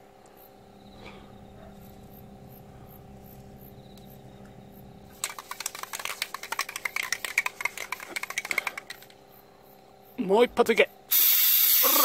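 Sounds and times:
faint steady hum: 0.0 - 12.0
aerosol can rattling when shaken: 5.1 - 9.2.

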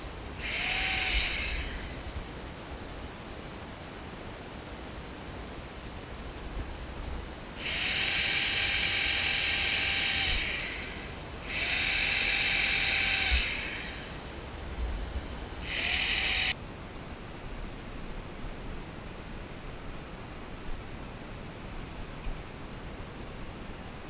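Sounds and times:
electric drill boring through plastic pipe: 0.0 - 2.2, 7.6 - 14.4, 15.5 - 16.6.

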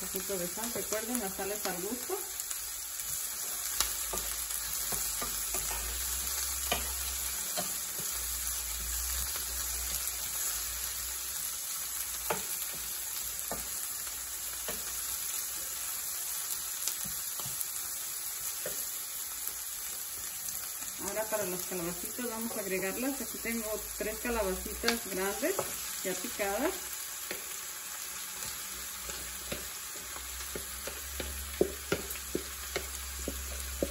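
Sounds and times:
vegetables sizzling in hot oil: 0.0 - 33.9.

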